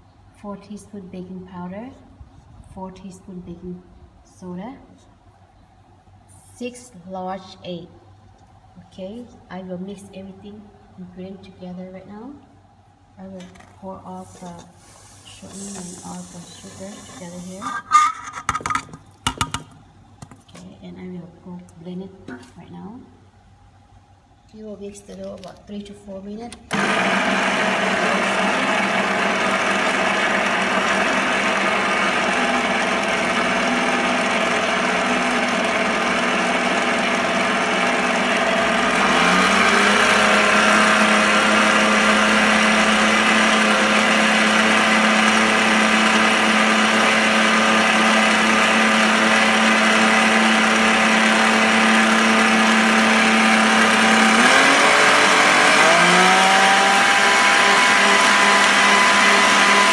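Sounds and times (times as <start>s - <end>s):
stand mixer motor whine: 26.7s - 59.9s.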